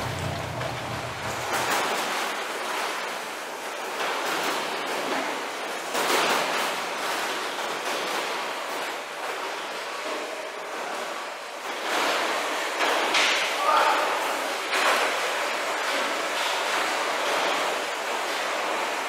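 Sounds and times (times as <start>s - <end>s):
low machine hum: 0.0s - 2.5s.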